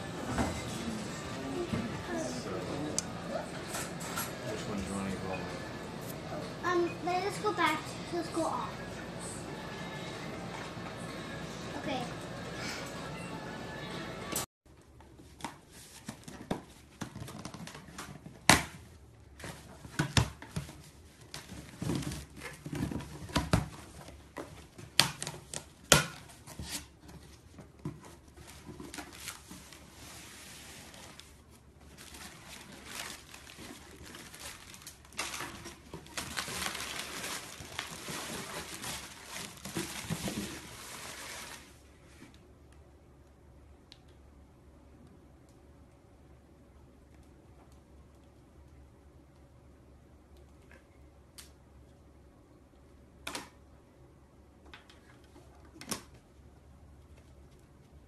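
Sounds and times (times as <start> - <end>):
bubble wrap and plastic crinkling: 20.6 - 42.2.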